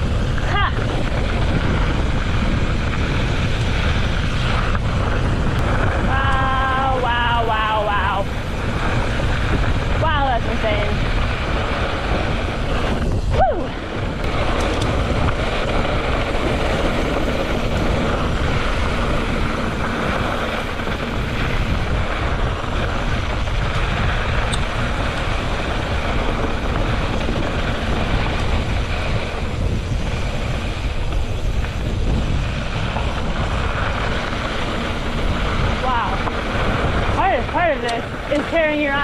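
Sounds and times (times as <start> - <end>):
bike tyres rolling on gravel: 0.0 - 39.0
wind on microphone: 0.0 - 39.0.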